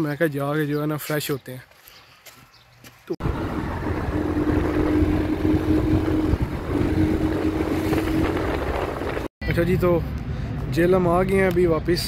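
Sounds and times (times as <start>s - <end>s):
vehicle low rumble: 3.2s - 12.0s.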